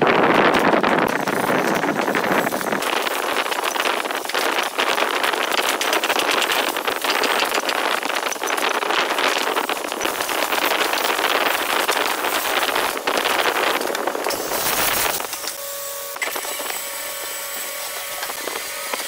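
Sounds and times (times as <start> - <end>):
mortising machine cutting wood: 0.1 - 19.0.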